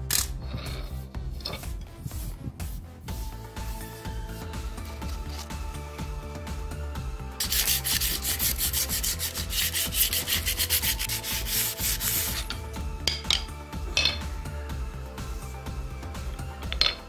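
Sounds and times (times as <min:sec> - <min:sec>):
sandpaper rubbing on wood: 0:01.6 - 0:05.5, 0:07.4 - 0:12.6.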